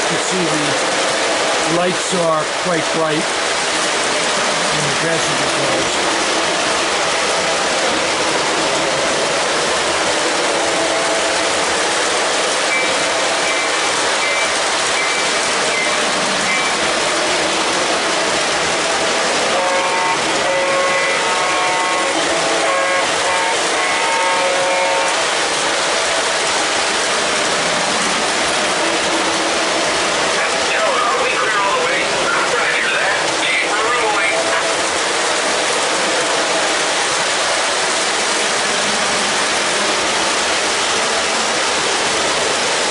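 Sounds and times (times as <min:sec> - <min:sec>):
model train wheels rumbling: 0:00.0 - 0:42.9
electronic train horn toots: 0:16.5 - 0:16.8, 0:19.4 - 0:25.3.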